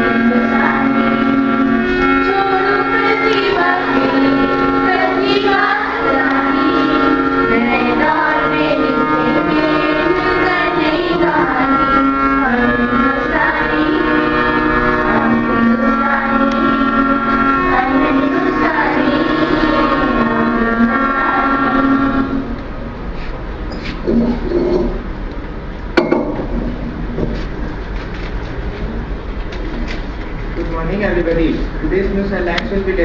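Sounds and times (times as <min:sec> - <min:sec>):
girls singing into microphones: 0:00.0 - 0:22.6
held accompanying notes: 0:00.0 - 0:33.0.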